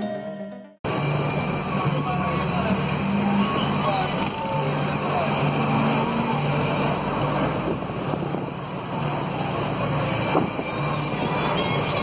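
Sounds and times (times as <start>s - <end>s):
bus engine and road noise: 0.0s - 12.0s
wind on microphone: 10.1s - 12.0s.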